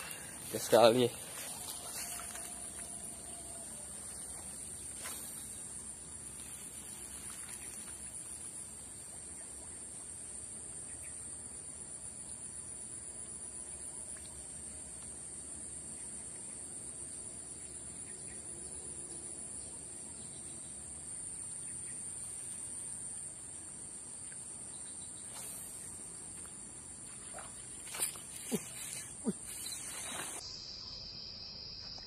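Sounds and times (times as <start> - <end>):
insects chirring: 0.0 - 32.0.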